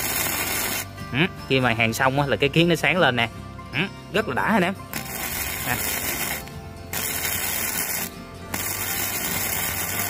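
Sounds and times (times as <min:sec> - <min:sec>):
welding arc crackling: 0:00.0 - 0:00.9, 0:04.9 - 0:10.0.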